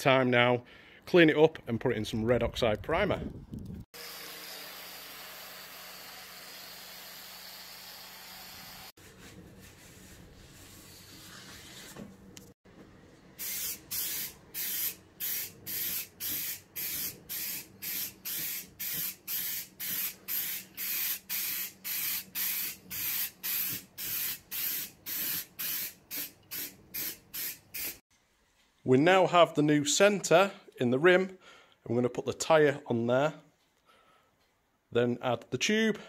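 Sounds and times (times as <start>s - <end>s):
spray paint hissing bursts: 13.4s - 28.0s.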